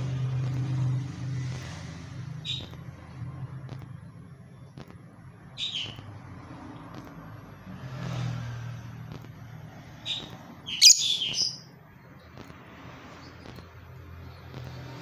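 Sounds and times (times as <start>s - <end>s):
bird chirping: 2.4s - 2.8s, 5.5s - 6.1s, 10.0s - 12.3s.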